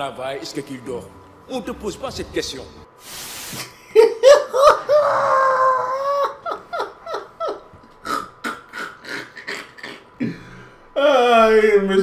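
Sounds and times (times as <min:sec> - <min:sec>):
brief hiss: 0:03.0 - 0:03.8
man laughing hard: 0:03.8 - 0:09.4.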